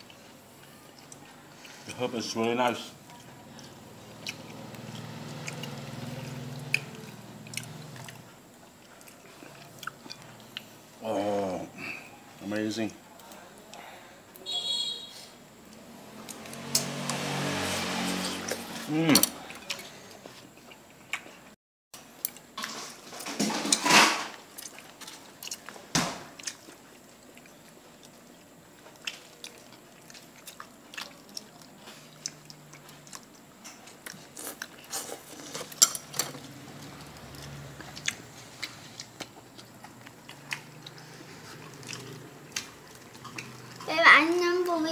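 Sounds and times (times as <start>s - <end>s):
person chewing: 3.0s - 12.1s, 18.0s - 21.6s, 24.4s - 43.9s.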